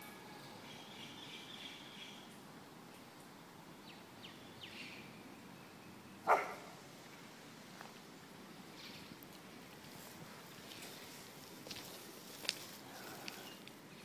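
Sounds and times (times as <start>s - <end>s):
dog barking: 6.2s - 6.7s.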